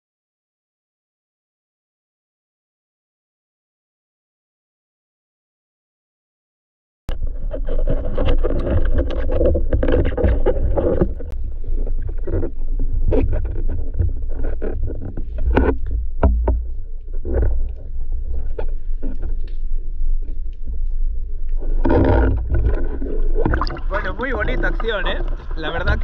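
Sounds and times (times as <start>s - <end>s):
underwater crackle: 7.1s - 26.0s
underwater rumble: 7.1s - 26.0s
sharp clicks and knocks: 13.1s - 17.8s.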